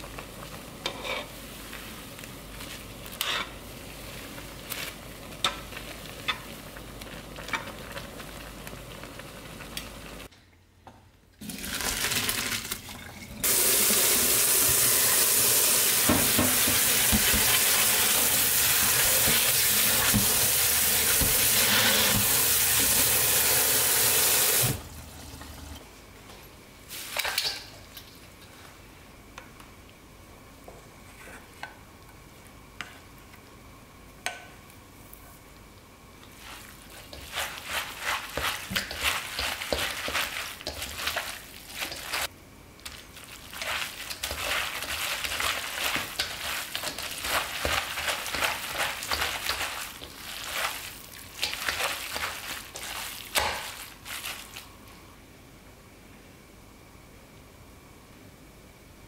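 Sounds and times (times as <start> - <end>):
noodles bubbling in a pot: 0.0 - 10.3, 35.9 - 54.8
tap water running into strainer: 11.4 - 24.9.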